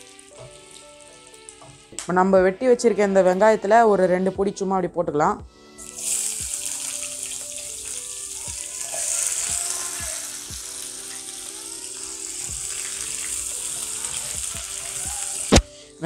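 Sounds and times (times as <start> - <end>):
onions sizzling in oil: 0.0 - 1.9, 5.8 - 15.6.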